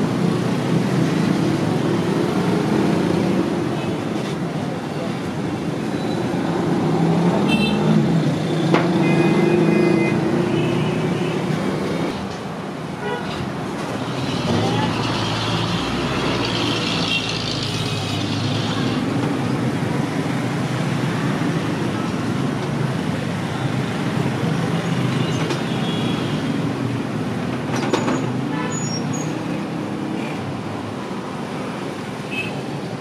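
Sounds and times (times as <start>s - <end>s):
passing vehicle engines: 0.0s - 25.8s.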